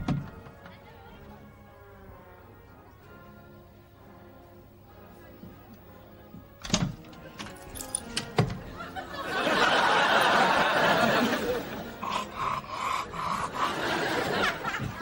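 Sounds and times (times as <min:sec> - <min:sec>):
studio audience laughter: 0:08.6 - 0:12.1, 0:13.1 - 0:15.0.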